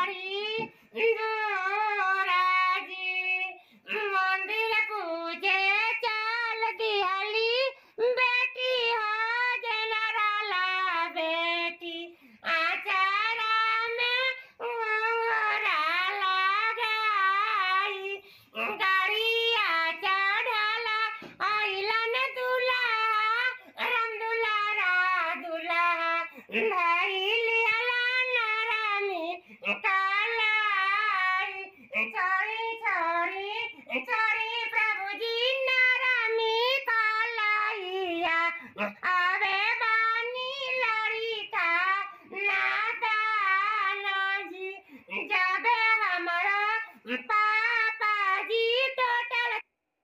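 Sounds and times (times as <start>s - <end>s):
man singing in high voice: 0.0s - 49.7s
man singing in falsetto: 22.9s - 34.6s, 36.9s - 39.7s, 41.8s - 48.4s.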